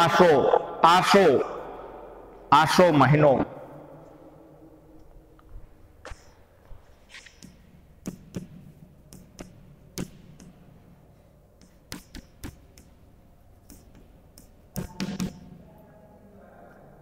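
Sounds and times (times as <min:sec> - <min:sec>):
chalk tapping and scraping on blackboard: 0:07.0 - 0:10.8, 0:11.6 - 0:15.6.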